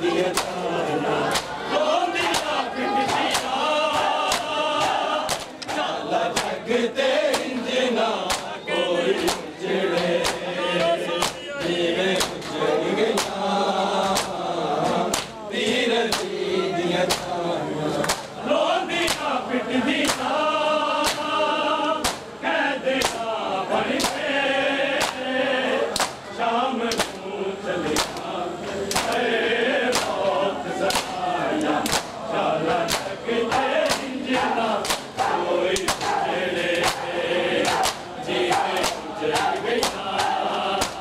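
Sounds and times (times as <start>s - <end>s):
men chanting in chorus: 0.0s - 41.0s
hands slapping on chests: 0.3s - 0.6s, 1.3s - 1.6s, 2.2s - 6.6s, 7.3s - 7.5s, 8.2s - 8.6s, 9.2s - 13.4s, 14.0s - 14.4s, 15.1s - 16.3s, 17.1s - 17.3s, 18.0s - 18.4s, 19.0s - 19.3s, 20.0s - 20.4s, 21.0s - 21.3s, 22.0s - 22.3s, 23.0s - 23.3s, 23.9s - 24.2s, 25.0s - 25.3s, 25.9s - 26.2s, 26.9s - 27.2s, 27.9s - 28.3s, 28.9s - 29.2s, 29.9s - 30.2s, 30.8s - 41.0s.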